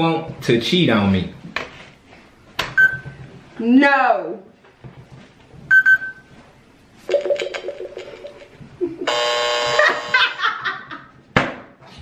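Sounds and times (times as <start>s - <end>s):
harsh electronic buzz: 9.0s - 10.2s.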